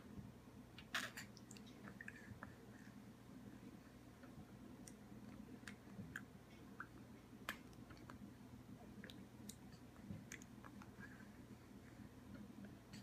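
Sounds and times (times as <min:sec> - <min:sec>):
low room hum: 0:00.0 - 0:13.0
baby mouth clicks and lip smacks: 0:09.0 - 0:10.9.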